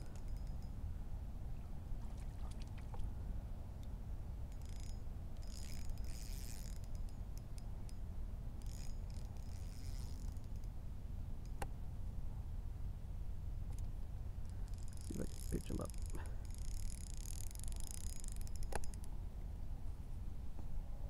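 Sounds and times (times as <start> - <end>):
fishing reel whirring and clicking: 0.1 - 0.7, 4.5 - 10.8, 14.4 - 19.1.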